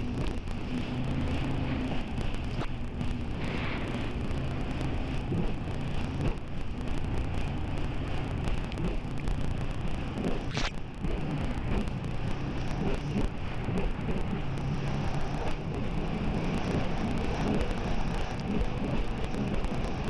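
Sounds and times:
boat engine humming: 0:00.0 - 0:12.7.

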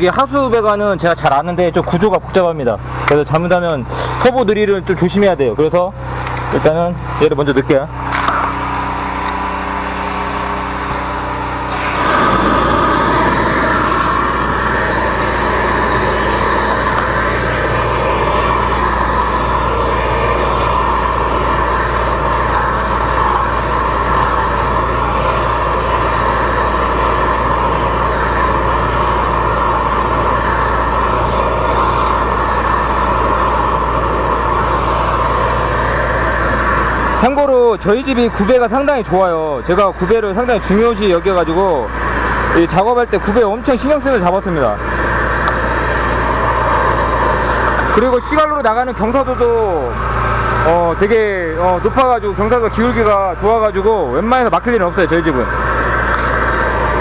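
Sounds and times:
drain jetter engine running: 0:00.0 - 0:57.0
water jet hissing rush: 0:11.7 - 0:53.2.

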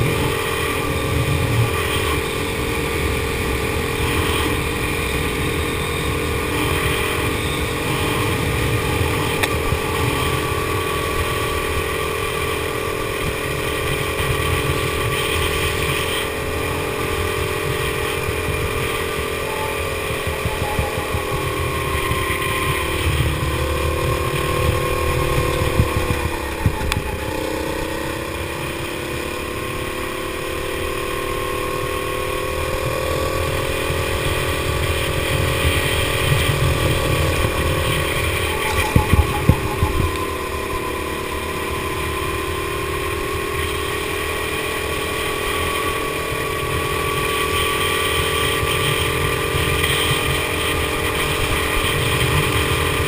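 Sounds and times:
go-kart engine running hard: 0:00.0 - 0:53.0.

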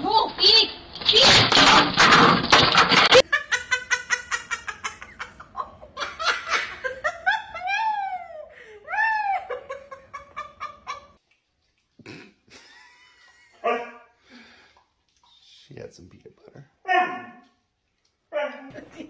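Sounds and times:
person laughing: 0:12.0 - 0:13.6, 0:18.7 - 0:19.0.

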